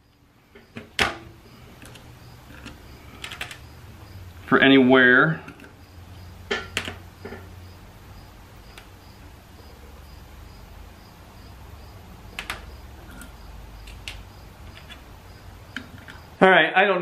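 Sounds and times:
low steady hum: 0:00.0 - 0:16.6
metal parts clicking: 0:01.7 - 0:03.7, 0:12.3 - 0:15.1.

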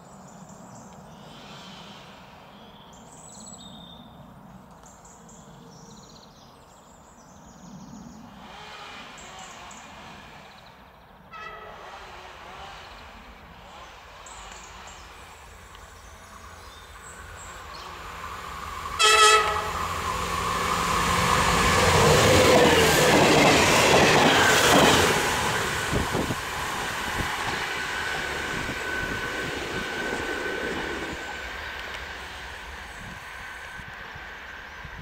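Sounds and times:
diesel train passing: 0:08.3 - 0:35.0
train horn blast: 0:11.3 - 0:13.1, 0:18.9 - 0:20.8.

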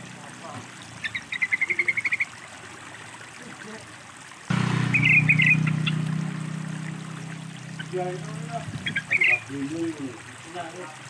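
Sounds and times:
running water hiss: 0:00.0 - 0:11.0
bird chattering call: 0:01.0 - 0:02.3, 0:04.8 - 0:09.6
low hum: 0:04.5 - 0:09.4.

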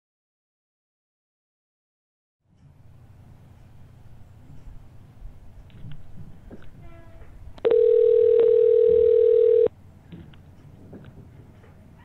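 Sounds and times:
phone line click: 0:07.6 - 0:09.7
telephone line tone: 0:07.6 - 0:09.7.

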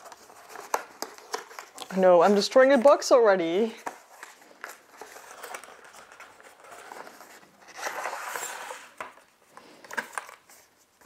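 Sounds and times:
cardboard box rustling and scraping: 0:04.0 - 0:09.1.

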